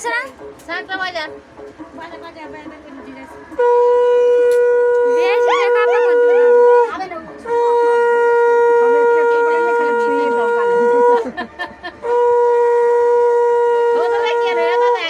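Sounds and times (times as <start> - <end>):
conch shell blasts: 3.6 - 11.2.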